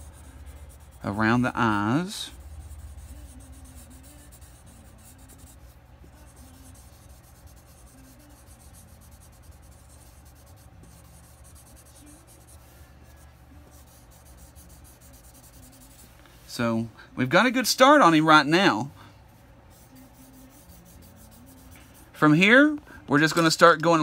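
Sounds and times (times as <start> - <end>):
pencil scratching on paper: 0.0 - 16.2, 19.7 - 22.1.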